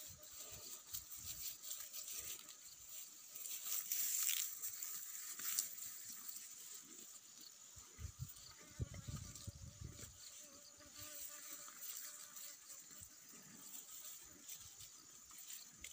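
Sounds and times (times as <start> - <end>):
cow tearing grass: 0.0 - 7.1.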